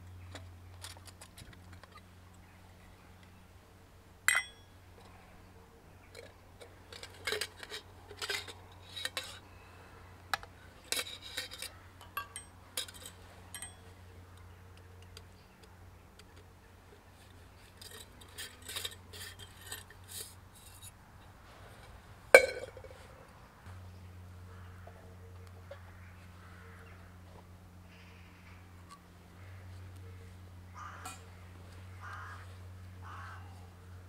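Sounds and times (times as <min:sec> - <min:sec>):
metal mug and utensil clinking: 0:04.3 - 0:04.6, 0:10.9 - 0:13.9, 0:22.4 - 0:22.9.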